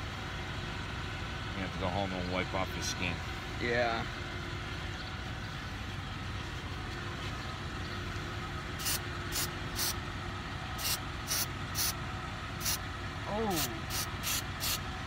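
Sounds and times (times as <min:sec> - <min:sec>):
aerosol spray hissing puffs: 0:08.8 - 0:10.0, 0:10.8 - 0:11.9, 0:12.6 - 0:12.8, 0:13.6 - 0:14.8.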